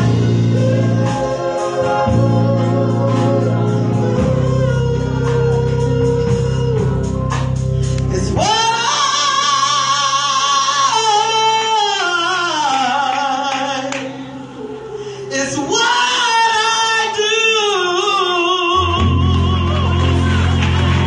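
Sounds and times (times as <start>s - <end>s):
woman singing into a microphone: 8.0s - 20.6s.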